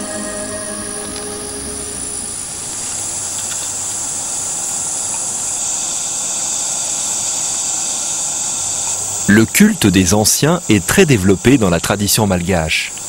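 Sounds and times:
background music: 0:00.0 - 0:03.2
shrill insect chorus: 0:00.0 - 0:13.0.

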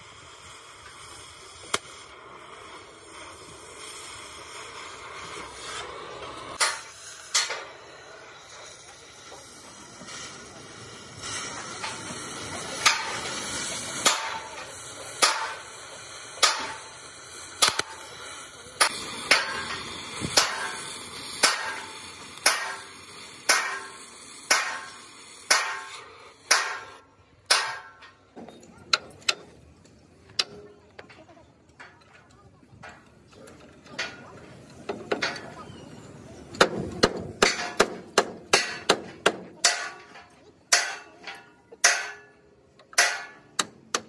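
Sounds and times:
cutting torch hissing: 0:00.0 - 0:27.0.

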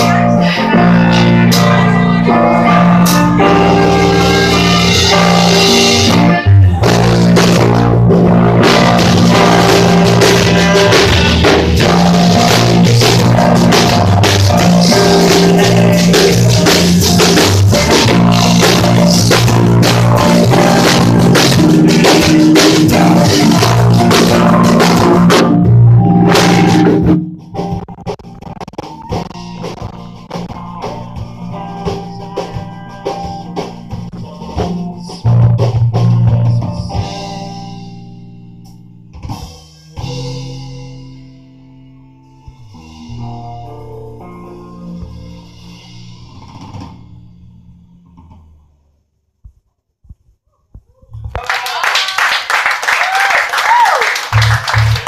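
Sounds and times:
live rock band playing: 0:00.0 - 0:41.8, 0:53.1 - 0:55.0.

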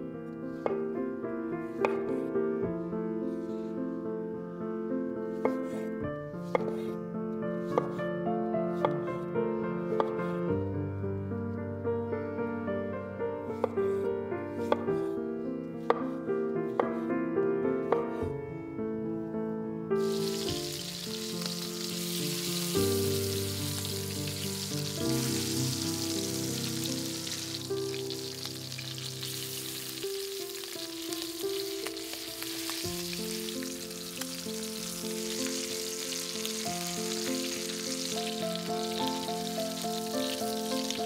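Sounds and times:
background music: 0:17.8 - 0:41.0
chicken sizzling in a pan: 0:20.0 - 0:41.0.

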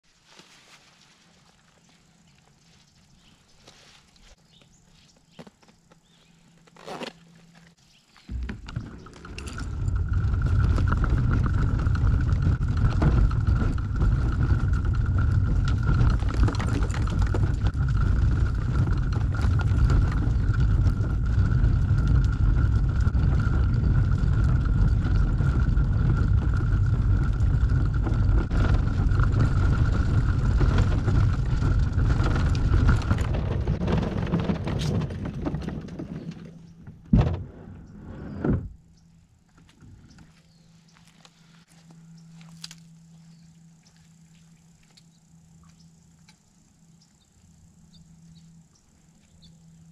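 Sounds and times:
cart wheels rumbling on asphalt: 0:04.5 - 0:41.1
high whine: 0:06.4 - 0:33.8, 0:36.9 - 0:49.9.

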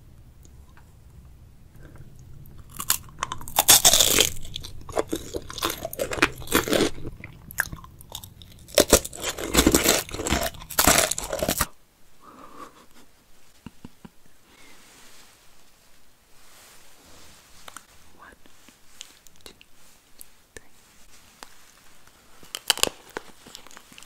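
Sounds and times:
chewing: 0:01.7 - 0:11.8, 0:22.4 - 0:24.0
crunching bites of wafer cone: 0:02.5 - 0:11.8, 0:22.4 - 0:24.0.

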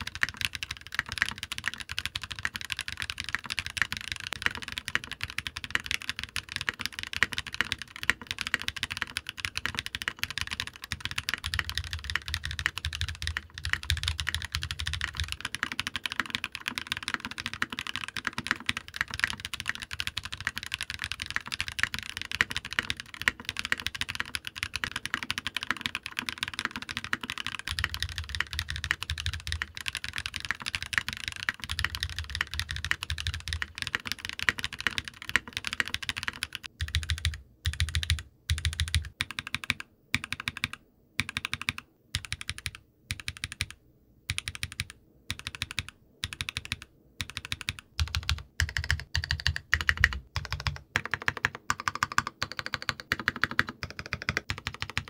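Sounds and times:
mechanical keyboard typing: 0:00.0 - 0:55.0.

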